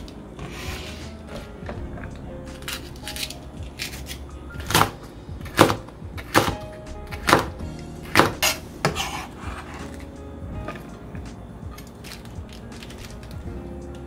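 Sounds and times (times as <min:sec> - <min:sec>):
background music: 0:00.0 - 0:14.0
knife chopping on cutting board: 0:03.8 - 0:10.0.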